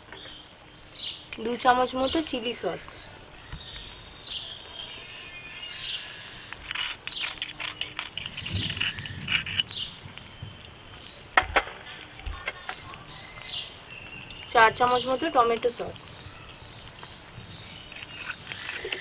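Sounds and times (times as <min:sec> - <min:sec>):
small birds chirping: 0:00.0 - 0:19.0
spoon scraping a bowl: 0:06.6 - 0:09.7, 0:17.9 - 0:19.0.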